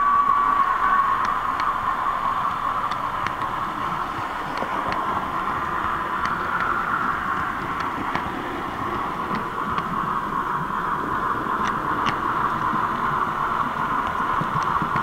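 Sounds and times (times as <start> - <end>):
model train whine: 0.0 - 9.6
light irregular clicks: 2.4 - 10.0, 11.5 - 15.0.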